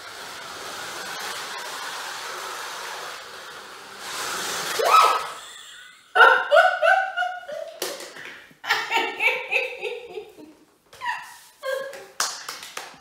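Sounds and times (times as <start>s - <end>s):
rising squeal: 0.0s - 5.8s
slot car motors whirring: 0.0s - 6.0s
woman laughing hard: 4.8s - 7.8s, 8.6s - 12.2s.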